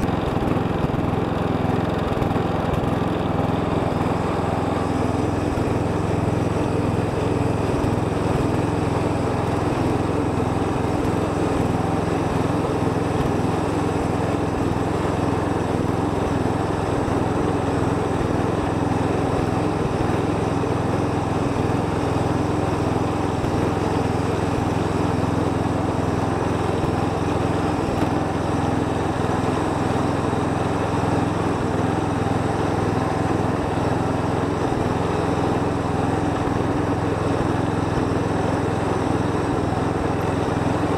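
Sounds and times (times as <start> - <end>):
lawn tractor engine running: 0.0 - 40.9.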